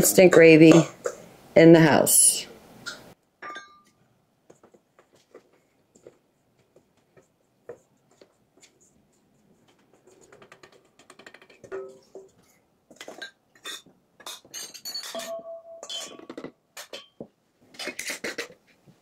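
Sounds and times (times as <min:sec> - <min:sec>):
glass clinks: 0:03.4 - 0:04.0, 0:14.6 - 0:16.3.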